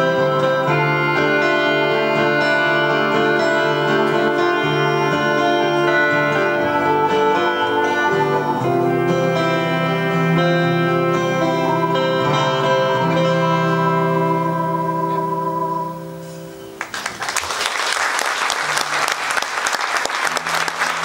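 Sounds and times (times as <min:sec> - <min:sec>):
guitars and melodica chord: 0:00.0 - 0:16.8
audience applause: 0:16.7 - 0:21.0.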